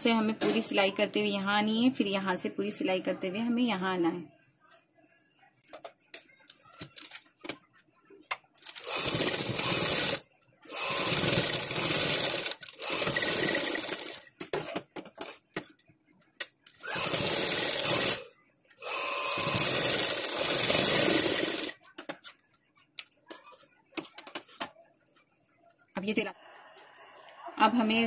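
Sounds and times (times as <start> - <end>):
sewing machine stitching: 8.6 - 14.3, 16.8 - 21.8.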